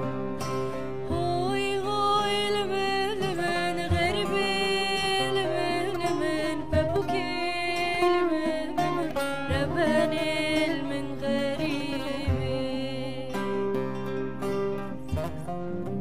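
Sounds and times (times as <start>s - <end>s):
acoustic guitar: 0.0s - 16.0s
long-necked lute: 0.0s - 16.0s
woman singing: 1.0s - 14.0s.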